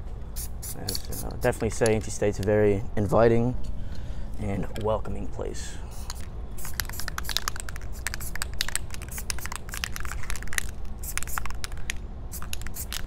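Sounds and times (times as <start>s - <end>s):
spray paint can hissing: 0.4s - 1.5s, 5.9s - 13.0s.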